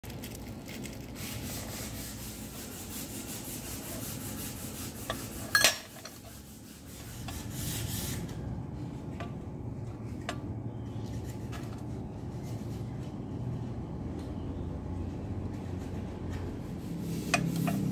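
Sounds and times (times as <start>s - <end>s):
low steady hum: 0.0s - 17.9s
steel tubing scraping on metal: 1.1s - 8.4s, 16.8s - 17.9s.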